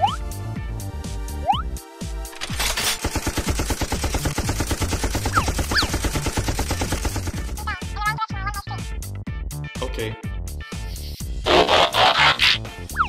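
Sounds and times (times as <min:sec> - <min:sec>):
machine-gun fire: 0:02.4 - 0:07.7.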